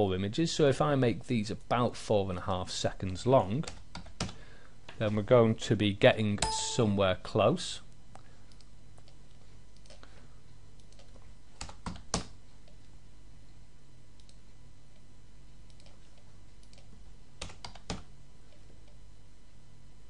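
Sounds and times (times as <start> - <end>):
faint low hum: 0.0 - 20.0
keyboard keys tapping: 6.4 - 6.9.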